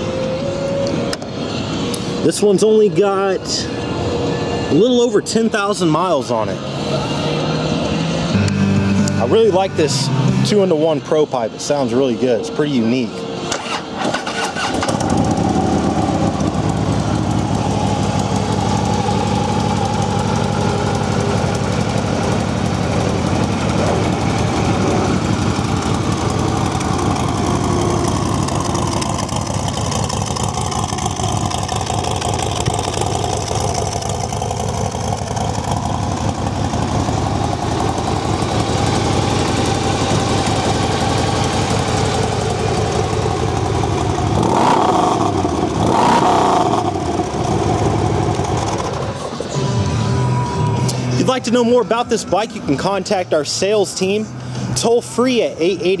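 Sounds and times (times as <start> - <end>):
motorcycle engine starting and idling: 13.5 - 54.1.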